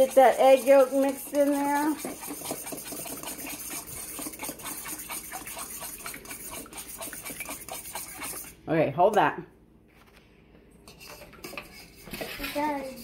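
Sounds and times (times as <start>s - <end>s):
eggs sloshing: 0.0s - 8.6s, 10.8s - 13.0s.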